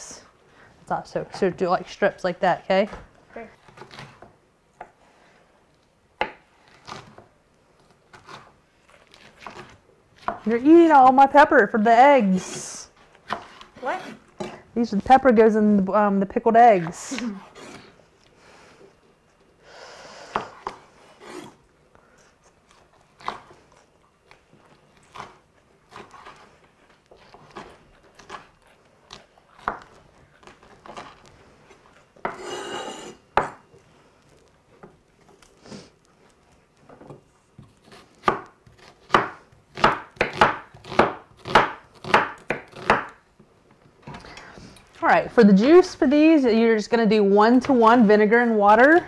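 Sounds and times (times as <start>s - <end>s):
knife chopping on wooden board: 37.6s - 43.2s.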